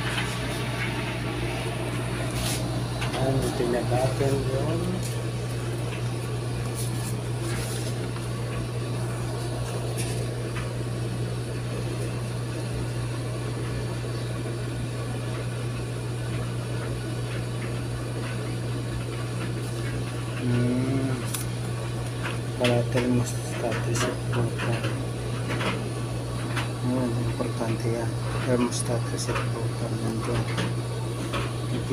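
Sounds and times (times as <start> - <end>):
tumble dryer humming: 0.0 - 31.9.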